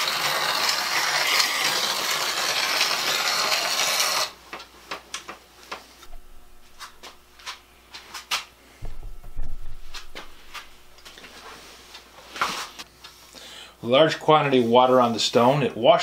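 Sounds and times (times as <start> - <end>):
blade grinding on sandstone wheel: 0.0 - 4.4
low rumble: 6.1 - 7.4, 8.8 - 11.0.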